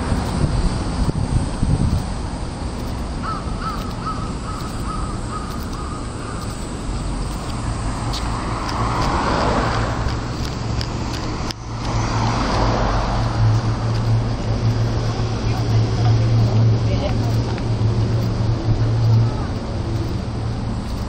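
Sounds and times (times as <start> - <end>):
traffic and wind noise: 0.0 - 21.0
vehicle passing: 0.0 - 21.0
crow cawing: 3.2 - 6.5.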